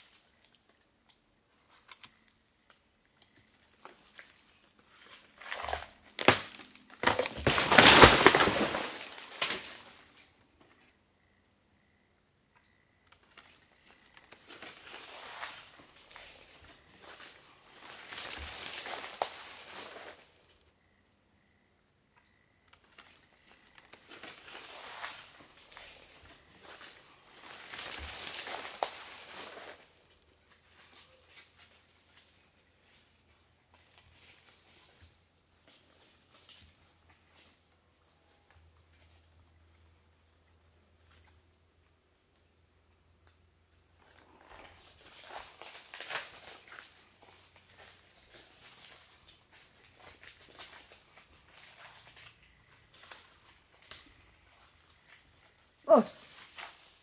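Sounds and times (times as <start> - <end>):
undergrowth crunching and rustling: 3.7 - 10.2, 13.4 - 20.3, 23.0 - 33.2, 44.0 - 55.4
footsteps crunching dry leaves: 5.2 - 9.8, 17.0 - 20.2, 24.1 - 29.9
twig snapping: 5.4 - 9.8
sharp crack: 5.7 - 9.8.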